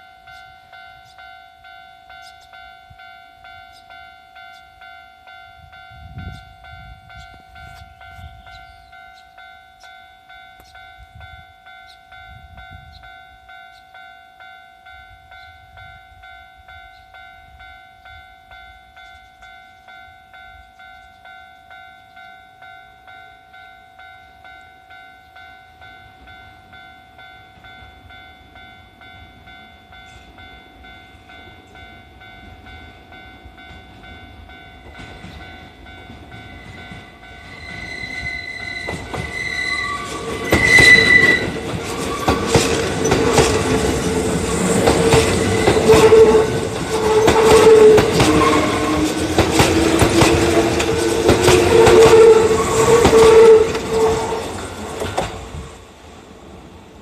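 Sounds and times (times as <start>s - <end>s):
level crossing bell ringing: 0.0s - 55.5s
train wheels clattering over rail joints: 34.9s - 55.5s
train motor whine: 36.0s - 55.8s.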